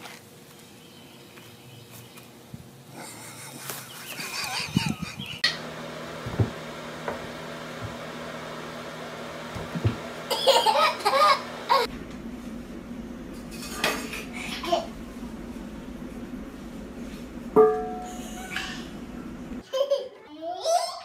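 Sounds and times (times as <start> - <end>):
toddler giggling: 3.0 - 5.4, 10.3 - 11.9, 19.6 - 21.0.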